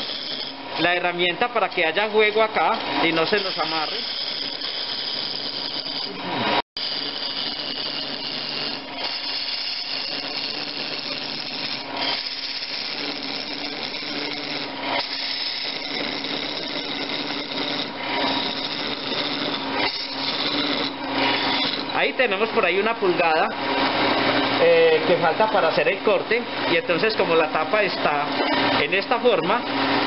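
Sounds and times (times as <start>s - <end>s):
tool scraping wood on lathe: 0.0s - 23.2s
lathe running hum: 0.0s - 30.0s.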